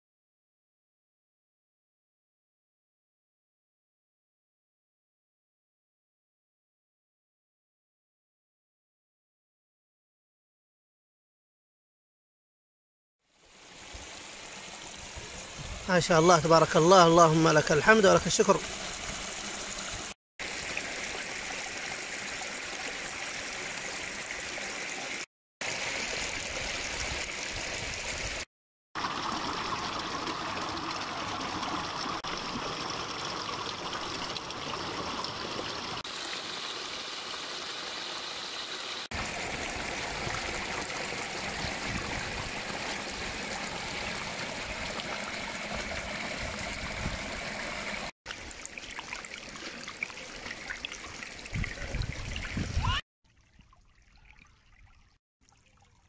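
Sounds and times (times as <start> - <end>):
water rushing over rock ledge: 13.7 - 30.6, 36.0 - 53.0.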